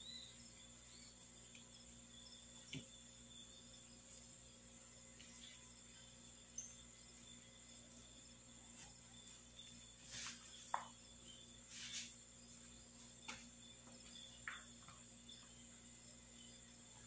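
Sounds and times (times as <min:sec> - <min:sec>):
dough rubbing swishes: 0:07.8 - 0:10.8, 0:11.5 - 0:13.5.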